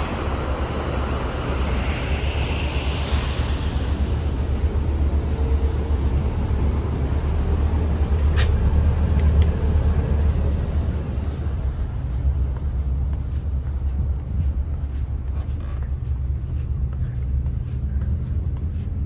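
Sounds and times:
ferry engines droning: 0:00.0 - 0:19.0.

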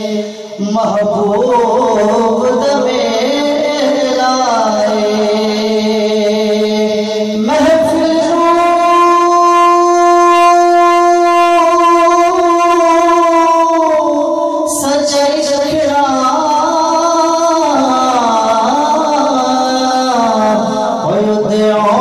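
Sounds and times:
man chanting into a microphone: 0:00.0 - 0:22.0.

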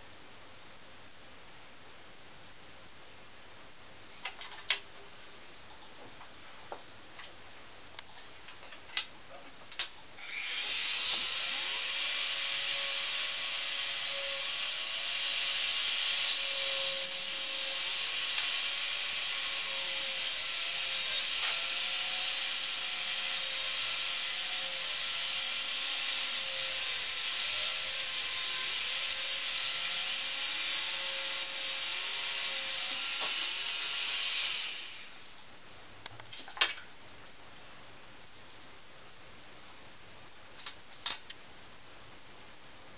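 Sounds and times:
rotary tool whining: 0:10.2 - 0:35.4.

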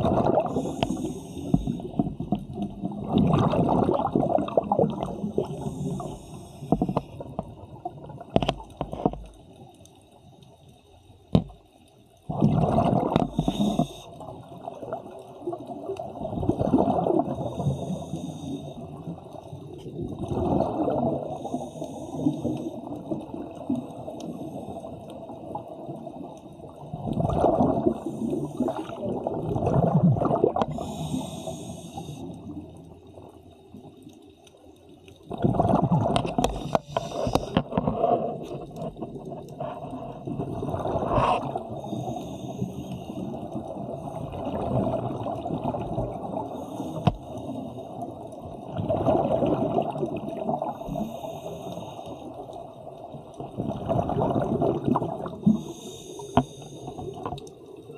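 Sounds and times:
underwater bubbles gurgling: 0:00.0 - 0:57.9
regulator hiss: 0:00.5 - 0:01.8, 0:05.5 - 0:06.8, 0:30.8 - 0:32.4, 0:55.6 - 0:57.0.

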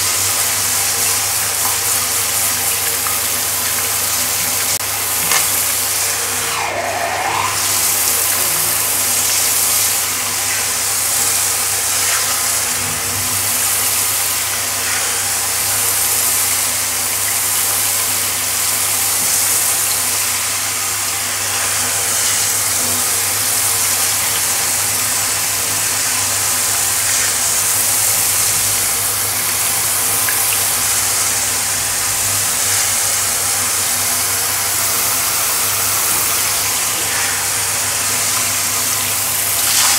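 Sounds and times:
water spraying on tiled floor: 0:00.0 - 0:39.9.

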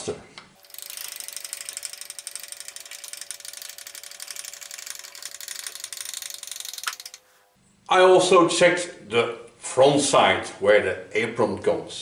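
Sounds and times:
feed gears ticking: 0:00.6 - 0:07.2.

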